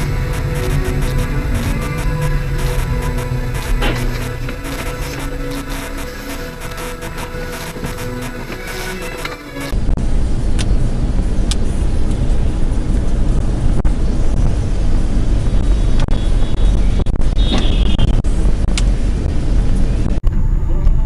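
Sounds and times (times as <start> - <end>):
high-pitched squeak: 0.0 - 9.7
background music: 0.0 - 9.8
car engine and tyre rumble: 0.0 - 21.0.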